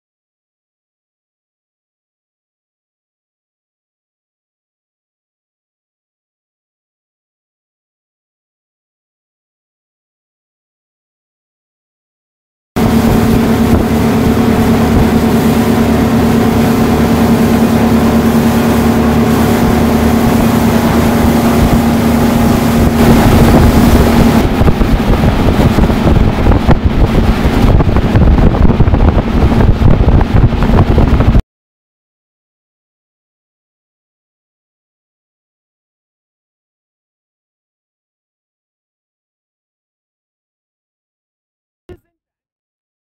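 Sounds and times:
ferry engines droning hum: 0:12.8 - 0:28.1
rough rushing noise: 0:12.8 - 0:31.4
wind buffeting microphone: 0:12.8 - 0:31.4.

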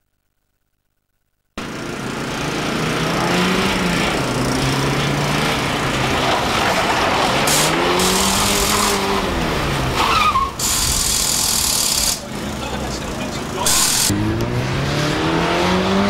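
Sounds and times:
car engine revving: 0:01.6 - 0:16.0
tyre squeal: 0:06.6 - 0:09.4, 0:10.0 - 0:12.2.

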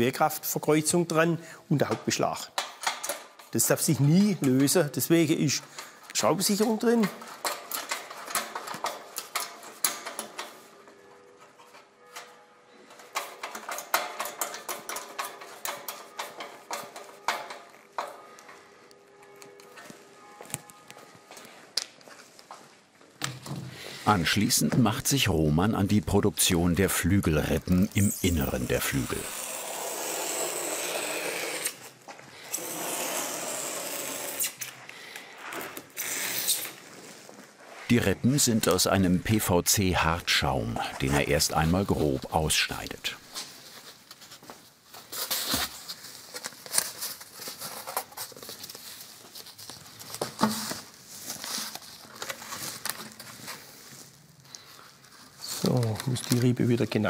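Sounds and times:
utility knife cutting foam sheet: 0:28.1 - 0:31.9.

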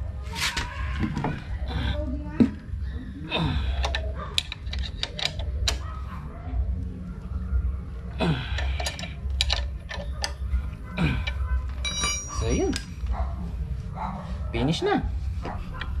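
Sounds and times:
wrench clicking on metal bolts: 0:03.8 - 0:05.9, 0:08.6 - 0:10.4.

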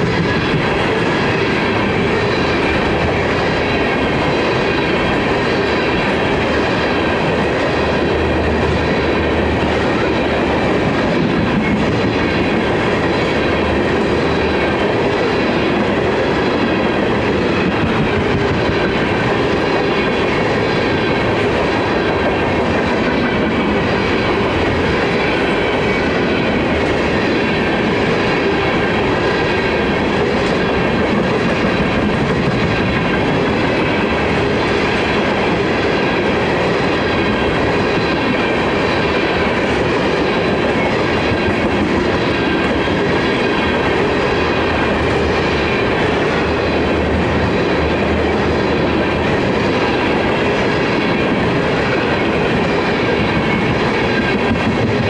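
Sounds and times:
train wheels on rails: 0:00.0 - 0:55.0.

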